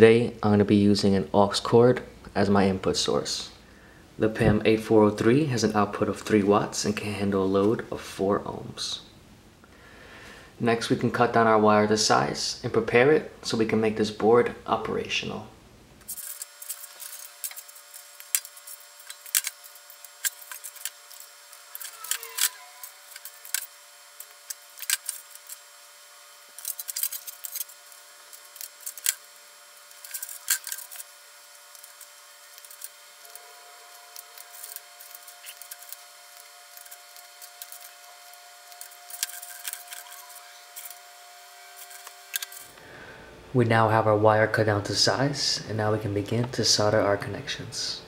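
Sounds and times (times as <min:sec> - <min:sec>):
wire cutters snipping: 0:16.0 - 0:25.7, 0:26.5 - 0:41.0, 0:41.7 - 0:42.8
rustling of wire and gloves: 0:16.1 - 0:42.8.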